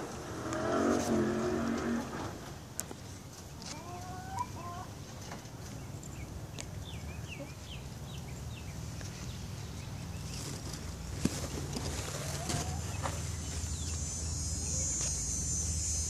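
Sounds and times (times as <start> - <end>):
chickens clucking: 3.3 - 15.1.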